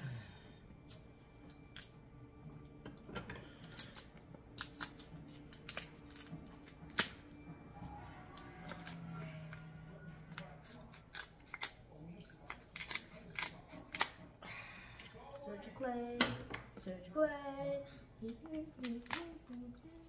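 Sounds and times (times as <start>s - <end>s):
shears snipping crab shell: 3.6s - 7.2s, 10.4s - 11.8s, 12.4s - 14.2s, 18.5s - 19.6s.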